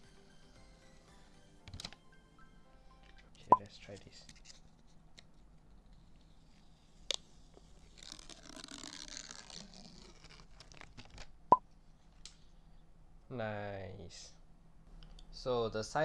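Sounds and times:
paper film peeling off plastic: 7.0 - 11.3.

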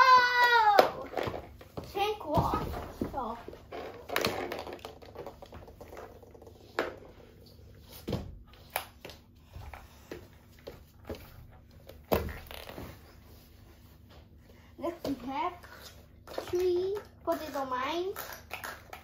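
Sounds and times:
plastic toys clicking and knocking: 3.8 - 7.0, 15.7 - 19.0.

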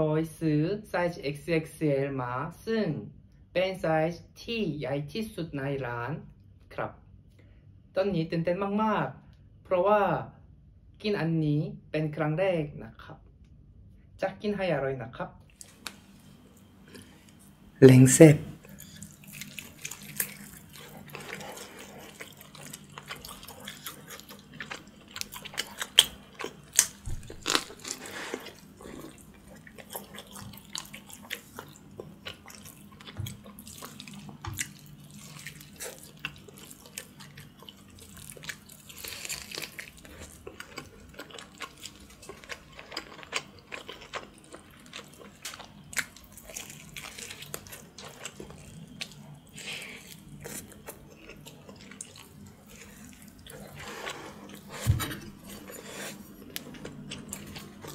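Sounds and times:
person gnawing meat off bone: 18.6 - 54.7, 55.3 - 57.9.

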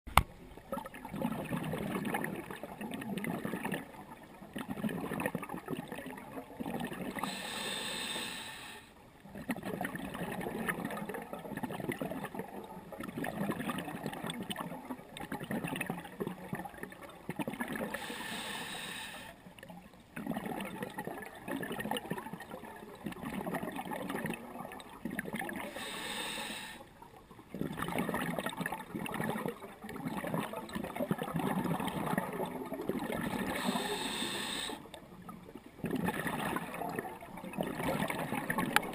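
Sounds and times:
exhaled bubbles gurgling: 0.5 - 38.9
regulator inhale hissing: 7.2 - 8.9, 18.0 - 19.4, 25.7 - 26.9, 33.5 - 34.9.

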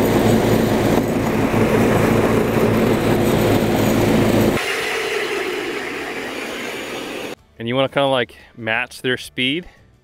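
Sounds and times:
snow machine engine drone: 0.0 - 7.4
track clatter: 0.0 - 7.4.

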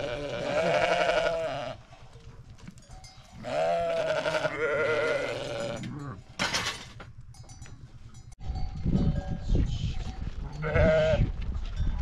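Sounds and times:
sheep bleating: 0.0 - 1.8, 3.4 - 6.2, 10.5 - 11.3.

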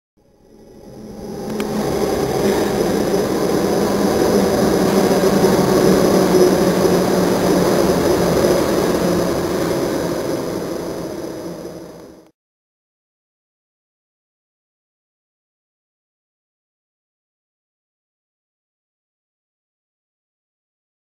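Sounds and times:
subway train rumbling: 0.2 - 12.3.

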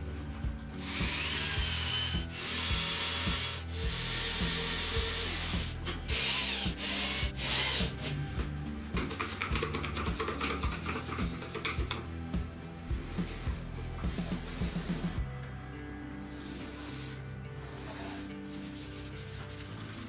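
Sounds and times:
background music: 0.0 - 20.0
power drill driving screws: 0.8 - 8.1.

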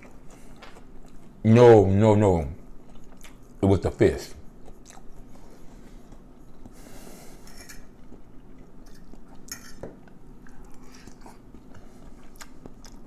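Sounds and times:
fork clinking and scraping on plate: 7.4 - 7.9, 8.8 - 9.9.

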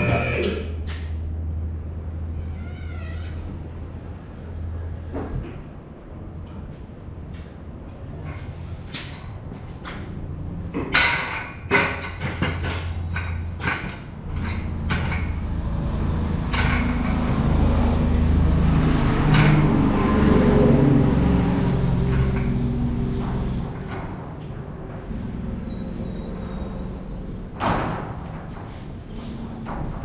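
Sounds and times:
steady rumble with low hum: 0.0 - 18.4.

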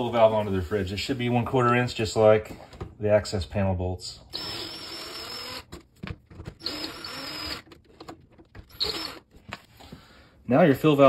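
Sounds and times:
cordless drill spinning: 4.3 - 5.8, 6.5 - 9.6.

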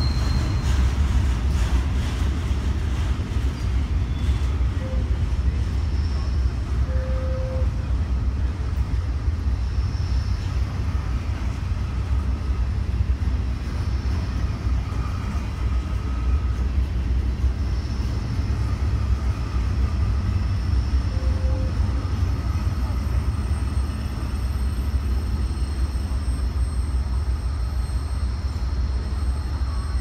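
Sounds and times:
faint high wheel squeals: 0.0 - 30.0
freight train wheels rumbling: 0.0 - 30.0.

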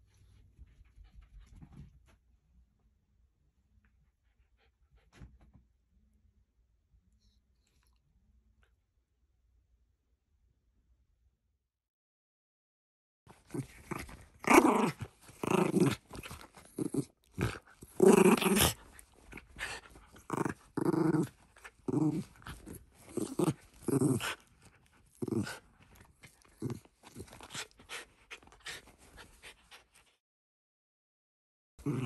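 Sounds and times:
dog play-growling: 13.3 - 30.2, 31.8 - 32.0.

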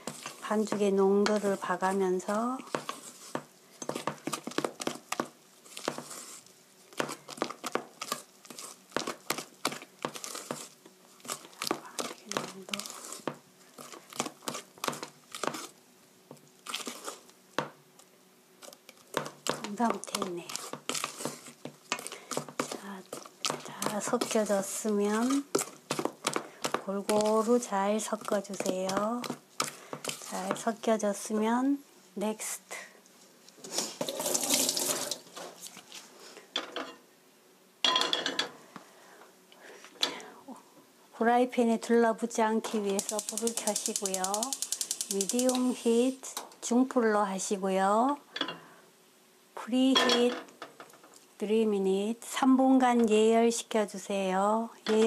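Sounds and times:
wooden spoon stirring batter in metal bowl: 0.0 - 17.8, 18.6 - 31.8, 42.6 - 46.9, 54.8 - 55.0
kitchen tap running: 34.0 - 35.3.

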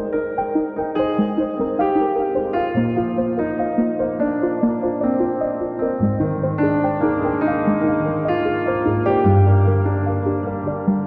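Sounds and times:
calm background music: 0.0 - 11.0.

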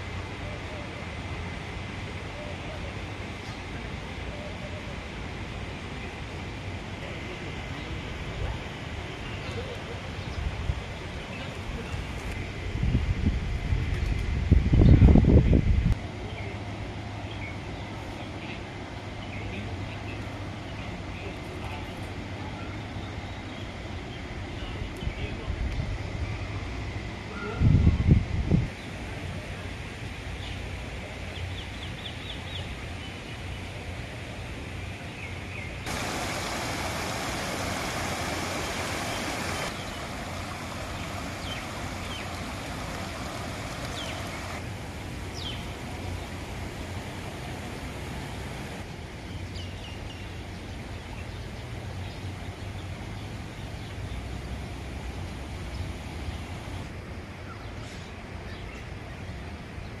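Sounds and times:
low rumble and hiss: 0.0 - 60.0
small birds chirping: 34.9 - 44.6, 45.2 - 46.4
loud hiss: 35.9 - 44.6.

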